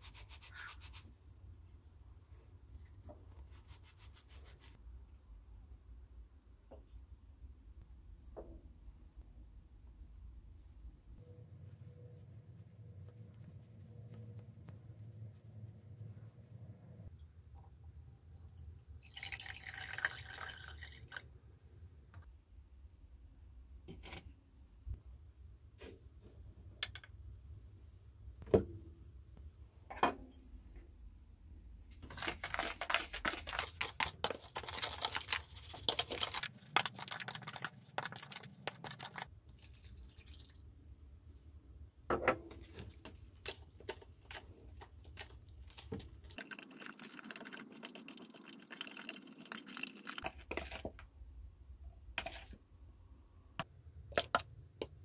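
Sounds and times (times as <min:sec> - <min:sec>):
liquid poured into glass jar: 0:17.5 - 0:21.3, 0:39.5 - 0:40.6, 0:46.4 - 0:50.4.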